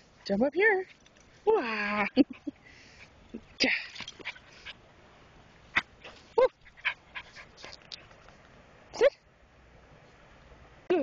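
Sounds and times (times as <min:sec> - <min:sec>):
light clicks and scuffles: 0:05.8 - 0:08.6.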